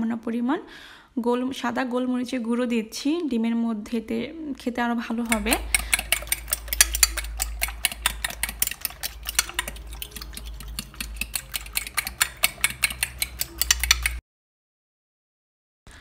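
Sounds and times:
metal spoon beating eggs in bowl: 5.1s - 14.2s.

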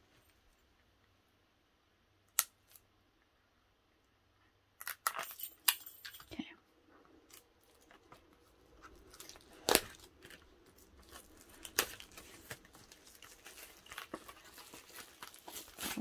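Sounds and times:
sharp plastic snaps: 2.3s - 2.9s
plastic wrap tearing and crinkling: 7.3s - 16.0s.

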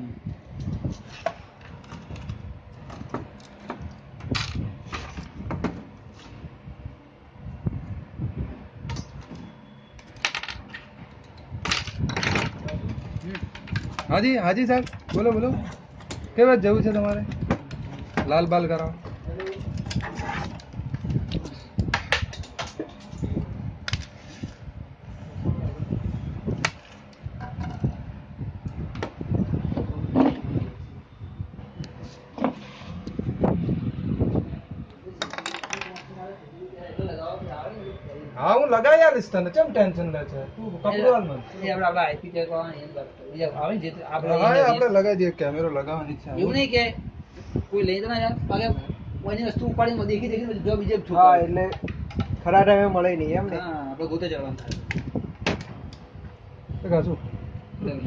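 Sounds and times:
clicks and knocks of parts and tools: 8.9s - 14.2s.

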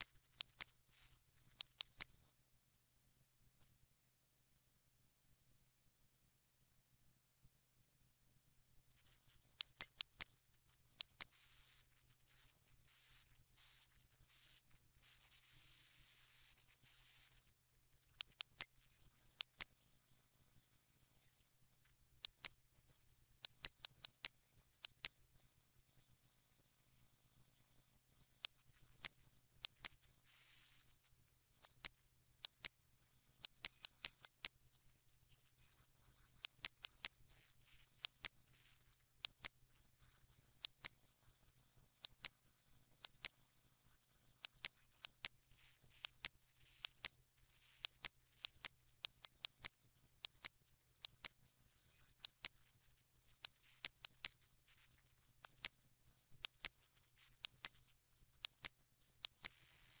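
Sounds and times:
mouse button clicks: 0.0s - 2.1s, 9.0s - 10.4s, 11.0s - 17.5s, 18.1s - 19.7s, 23.4s - 25.2s, 36.4s - 39.7s, 42.0s - 42.4s, 44.4s - 60.0s
faint low hum: 0.0s - 60.0s.

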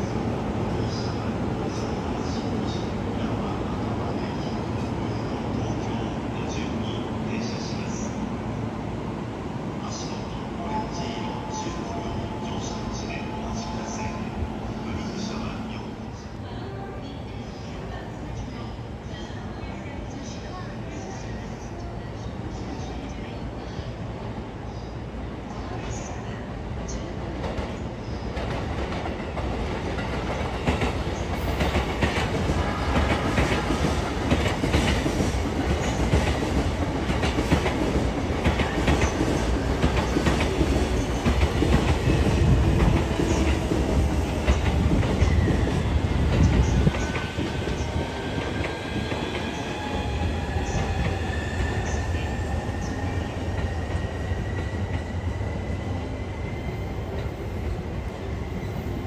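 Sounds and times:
quiet train running sound: 0.0s - 59.0s.

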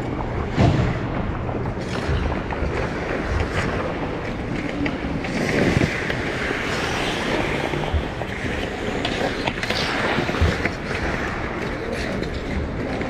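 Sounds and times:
ice skate blades scraping: 4.7s - 12.5s.

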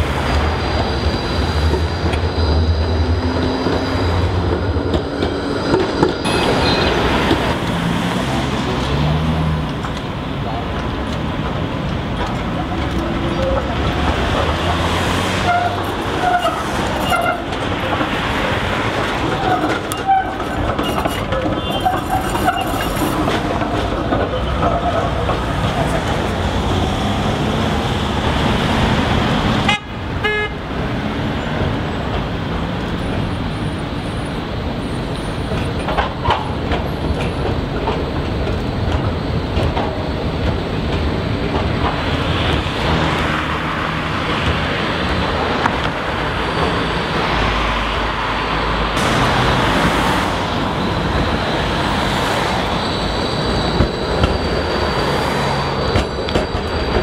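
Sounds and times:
tram running on rails: 0.0s - 57.0s
tram wheels squealing: 0.0s - 57.0s
cars driving past: 13.7s - 16.9s.

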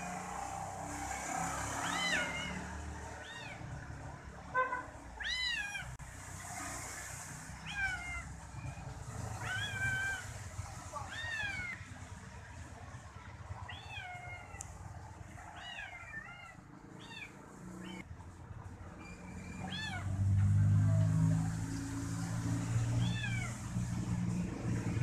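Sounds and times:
kitten meowing: 3.2s - 3.6s, 5.2s - 5.9s, 9.4s - 10.3s, 11.0s - 11.8s, 13.7s - 14.6s, 15.5s - 18.0s, 23.0s - 23.6s.

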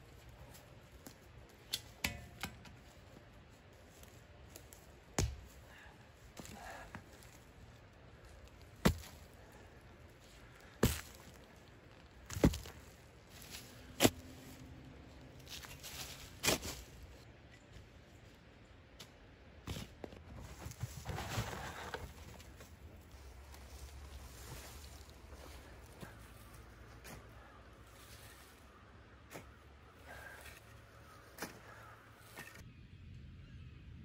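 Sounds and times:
dirt scraping: 6.4s - 17.3s, 19.0s - 32.7s
shovel chopping into stony soil: 8.7s - 9.2s, 10.8s - 11.4s.

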